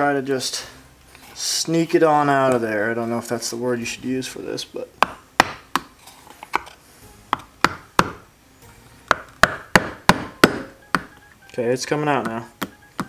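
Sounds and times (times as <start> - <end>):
hammer tapping metal nail: 9.1 - 11.1.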